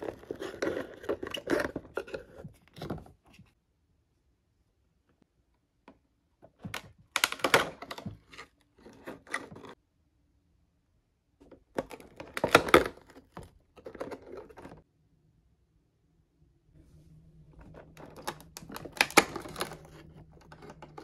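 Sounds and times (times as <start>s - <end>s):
plastic packaging crinkling: 17.7s - 21.0s.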